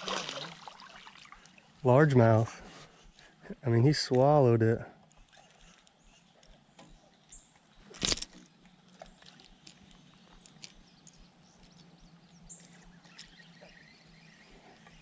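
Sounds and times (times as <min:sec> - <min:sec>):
small ticks: 0:05.0 - 0:07.7, 0:08.6 - 0:13.8.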